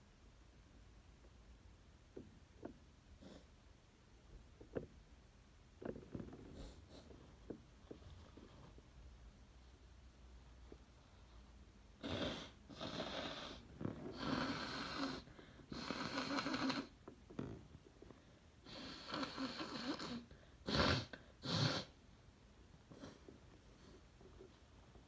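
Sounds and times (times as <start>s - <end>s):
person blowing nose: 18.7s - 22.0s.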